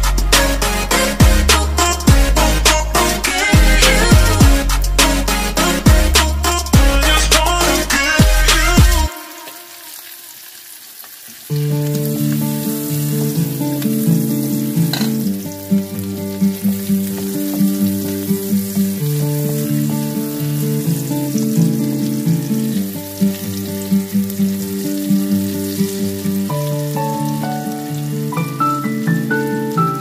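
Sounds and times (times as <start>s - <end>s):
soft instrumental music: 0.0s - 9.6s, 11.5s - 30.0s
food sizzling in oil: 6.5s - 30.0s.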